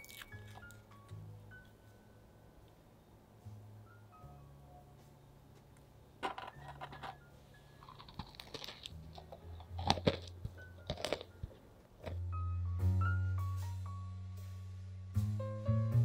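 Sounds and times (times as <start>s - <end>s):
cookie crust crunching: 0.0s - 0.9s, 7.8s - 12.2s
soft background music: 0.0s - 16.0s.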